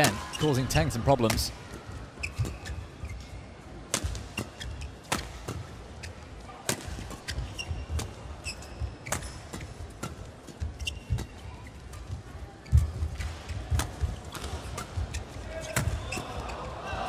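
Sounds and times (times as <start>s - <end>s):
shoes squeaking on floor: 2.1s - 3.6s, 4.2s - 6.4s, 7.0s - 16.6s.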